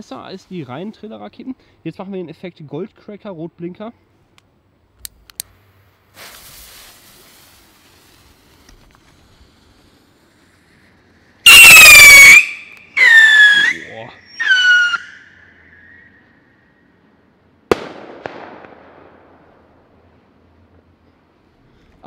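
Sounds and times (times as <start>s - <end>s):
rocket igniting hiss: 5.1s - 16.8s, 17.6s - 20.2s
rocket whistling howl: 11.4s - 16.8s.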